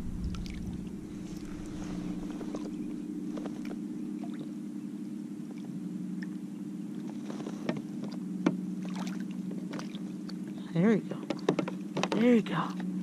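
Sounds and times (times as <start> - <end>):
light water splashes: 0.0 - 4.5, 8.0 - 13.0
steady low hum: 0.0 - 13.0.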